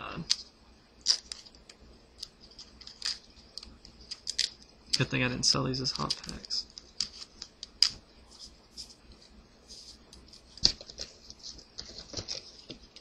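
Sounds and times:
trading cards sliding and flicking: 6.0s - 13.0s.

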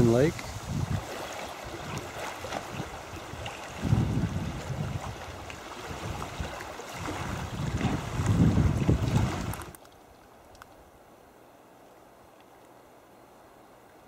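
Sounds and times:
wind on microphone: 0.0s - 9.8s
waves lapping on rocks: 0.0s - 9.9s.

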